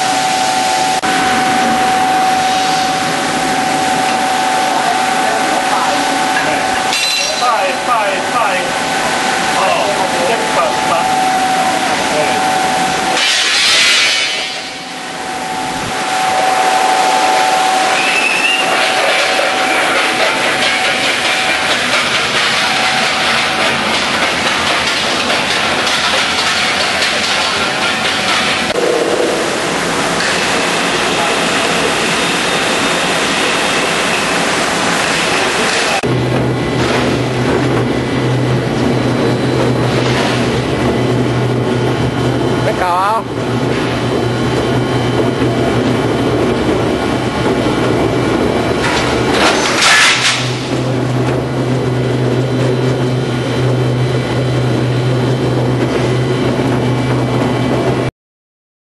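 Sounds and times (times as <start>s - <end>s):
faint high whine: 0.0s - 21.9s
wire machine rushing noise: 0.0s - 58.1s.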